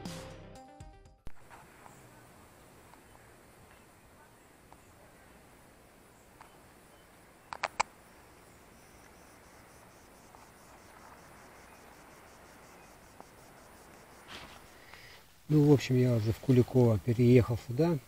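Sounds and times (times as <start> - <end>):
faint insect chirping: 1.3 - 18.0
sharp clicks: 7.4 - 8.0.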